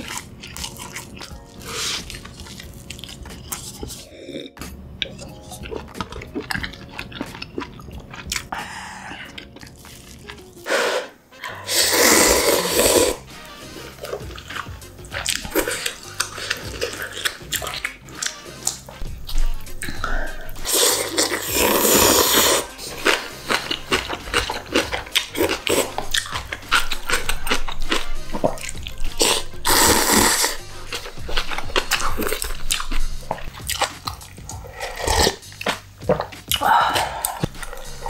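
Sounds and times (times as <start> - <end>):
soft background music: 0.0 - 38.0
person slurping noodles: 10.6 - 18.4, 19.8 - 32.8, 34.5 - 35.4
wet mouth clicks: 31.4 - 38.0.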